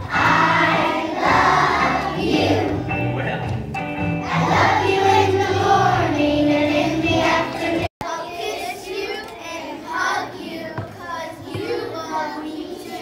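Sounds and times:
children singing: 0.0 - 3.0, 4.2 - 13.0
music: 0.0 - 7.9.

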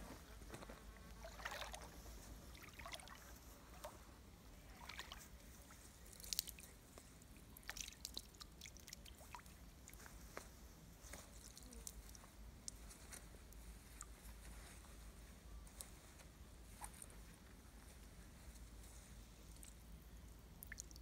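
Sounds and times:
water splashing and dripping: 1.2 - 1.9, 7.6 - 9.5, 20.6 - 21.0.

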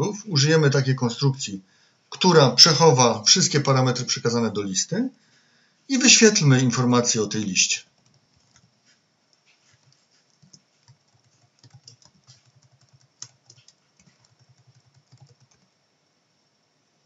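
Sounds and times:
faint keyboard typing: 7.8 - 15.8.

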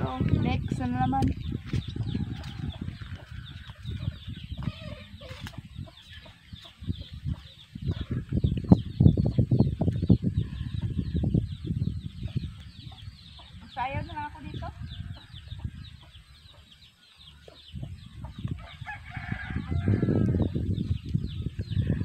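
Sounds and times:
chickens clucking: 1.4 - 14.2, 15.0 - 18.8.

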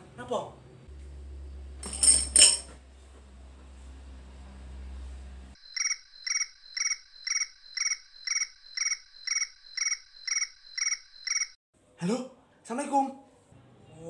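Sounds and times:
phone ringtone chirping: 5.6 - 11.6.

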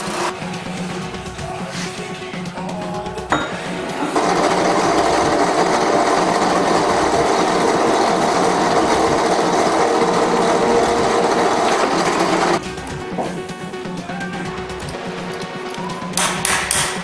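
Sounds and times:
bandsaw cutting steel: 3.8 - 12.6
coolant flowing: 4.1 - 12.6.

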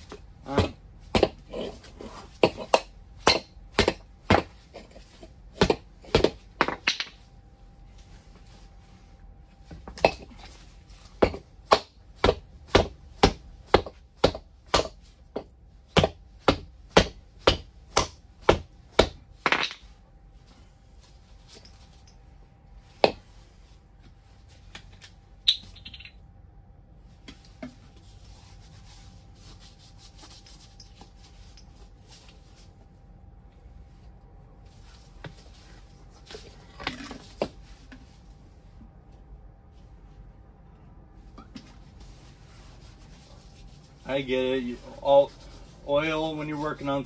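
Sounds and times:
sharp knocks on tire: 11.2 - 19.8.

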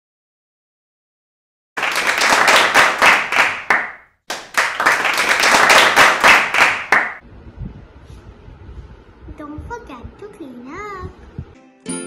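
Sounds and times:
hands clapping: 1.8 - 7.2.

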